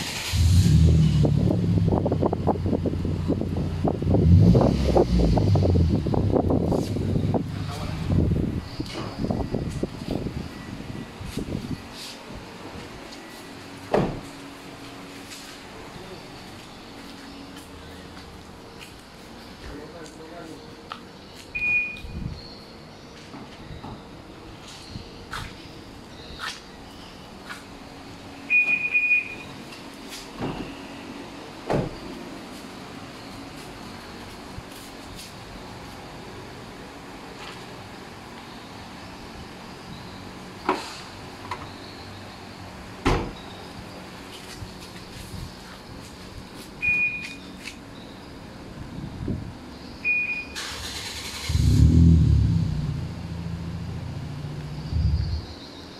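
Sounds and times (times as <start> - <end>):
car starter cranking: 0.0 - 1.1, 50.6 - 52.1
car engine idling: 0.0 - 9.6, 50.0 - 55.6
car alarm beep: 21.5 - 22.7, 28.5 - 29.6, 46.8 - 47.5, 50.0 - 51.1
short electronic beep: 46.8 - 47.4.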